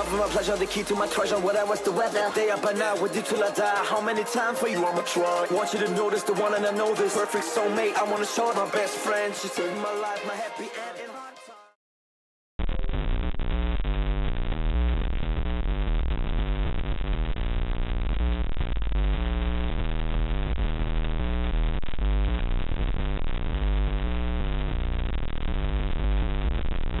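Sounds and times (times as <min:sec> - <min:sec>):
glitchy electronic noise music: 0:00.0 - 0:11.4, 0:12.6 - 0:27.0.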